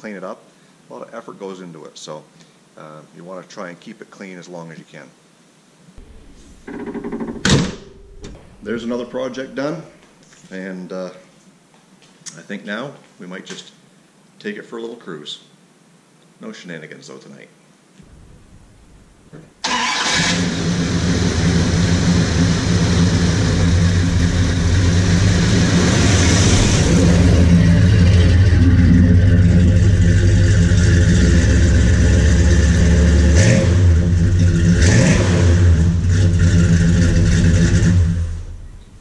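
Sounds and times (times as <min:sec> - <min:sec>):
car engine running and revving: 0:06.0 - 0:06.7, 0:20.4 - 0:38.5.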